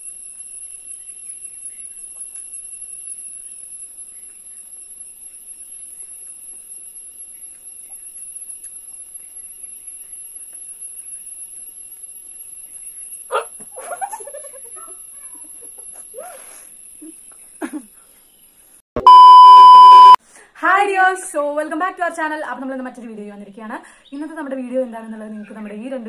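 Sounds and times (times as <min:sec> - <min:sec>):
high-pitched insect drone: 0:00.0 - 0:17.4.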